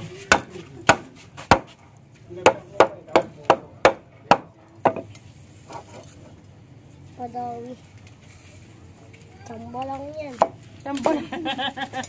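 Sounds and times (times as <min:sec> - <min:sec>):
stick knocking on machete: 0:00.3 - 0:01.8.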